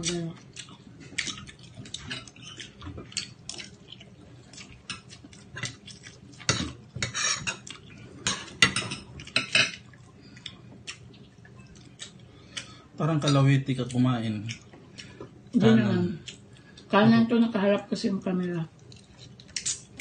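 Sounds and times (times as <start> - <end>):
spoon and dishes clinking: 8.3 - 9.8.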